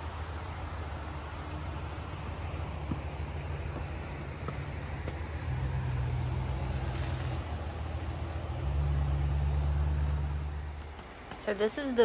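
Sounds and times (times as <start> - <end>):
steady low rumble: 0.0 - 8.6.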